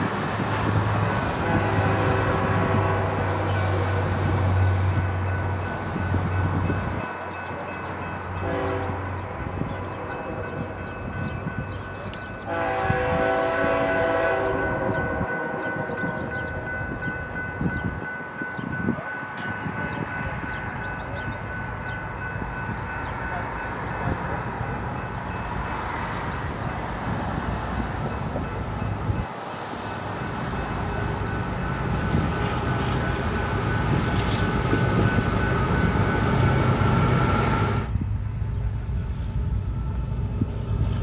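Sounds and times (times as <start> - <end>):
passing train rumble: 0.0 - 41.0
locomotive air horn blasts: 1.3 - 4.8, 8.4 - 10.7, 12.4 - 16.3.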